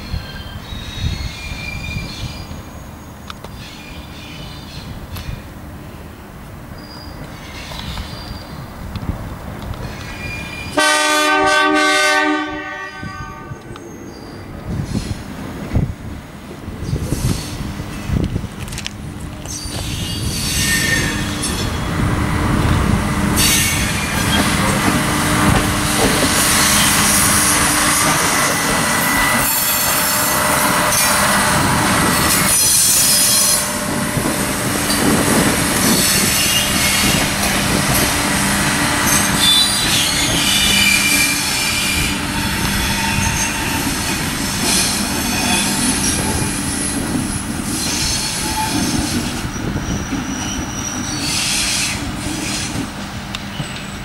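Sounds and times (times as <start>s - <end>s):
train wheels squealing: 0.0s - 5.5s, 6.8s - 8.7s, 9.8s - 10.8s, 13.5s - 15.3s, 16.8s - 18.1s, 19.4s - 22.0s, 23.4s - 24.8s, 26.0s - 31.2s, 32.0s - 33.8s, 34.9s - 37.3s, 39.0s - 54.0s.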